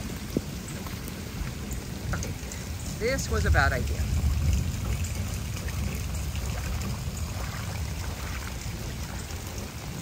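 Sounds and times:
torrential rain on water: 0.0s - 10.0s
low rumble: 2.7s - 10.0s.

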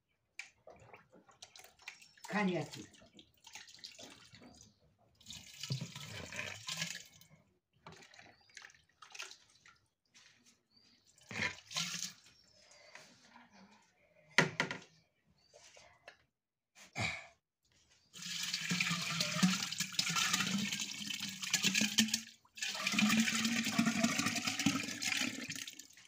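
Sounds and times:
splashing and dripping: 0.4s - 7.2s, 7.9s - 9.9s
yogurt pouring into clay pot: 18.2s - 25.9s.

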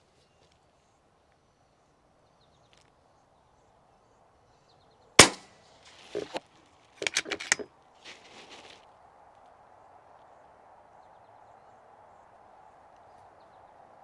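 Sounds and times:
air rifle shot: 5.2s - 5.6s
metallic clicks of rifle action: 7.0s - 7.7s.

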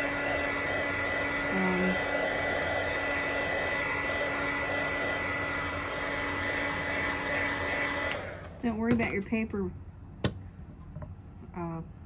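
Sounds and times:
heat tool blowing air: 0.0s - 8.8s.

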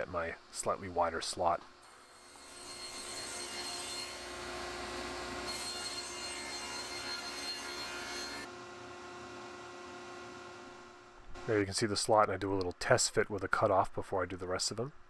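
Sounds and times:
table saw cutting wood: 1.9s - 8.5s
table saw humming: 1.9s - 8.5s.

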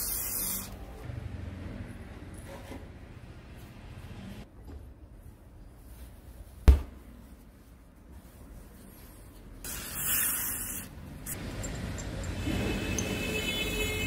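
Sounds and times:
hiss: 9.7s - 10.9s.

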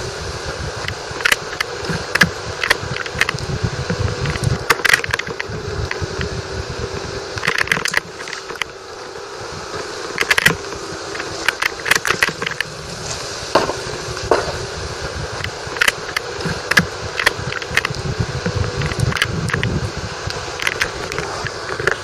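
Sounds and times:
steady rushing noise: 0.0s - 22.0s.

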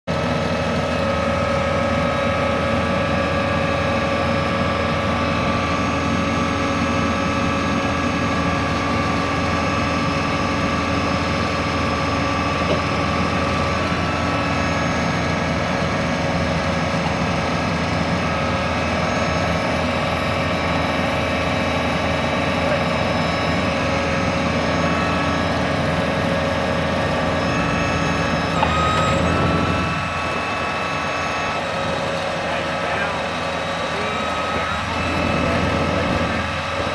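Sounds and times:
drill rig engine drone: 0.1s - 36.9s
hydraulic whine: 0.1s - 36.9s.

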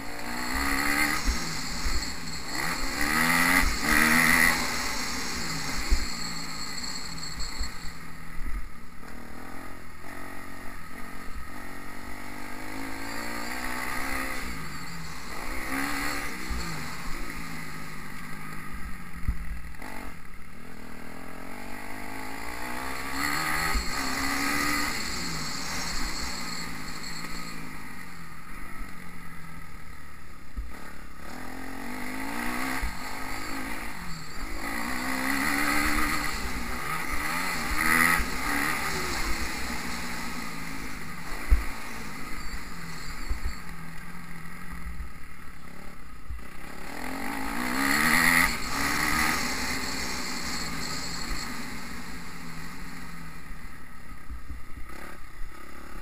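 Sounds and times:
motocross bike engine revving: 0.0s - 56.0s.

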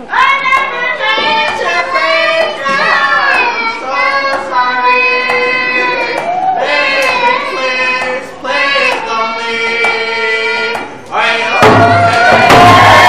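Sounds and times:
girl singing into a microphone: 0.1s - 8.2s
crowd cheering and whooping: 5.8s - 7.4s, 11.6s - 13.0s.

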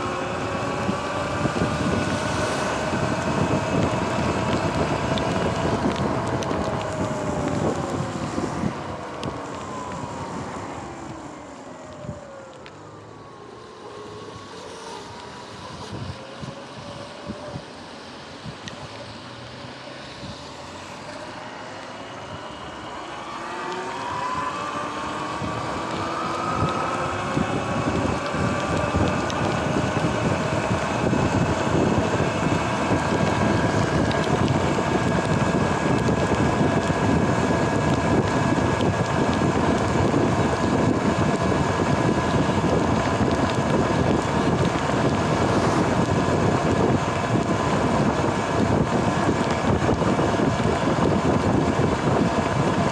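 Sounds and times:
tyres hissing on wet pavement: 0.0s - 52.9s
wind rushing over microphone: 0.0s - 52.9s
electric motor whine: 20.1s - 52.9s.

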